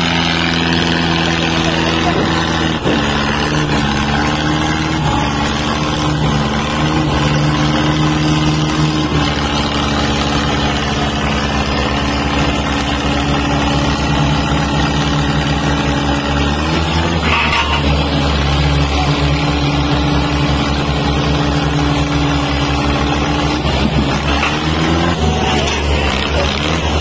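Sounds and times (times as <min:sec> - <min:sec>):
diesel tractor engine running: 0:00.0 - 0:27.0.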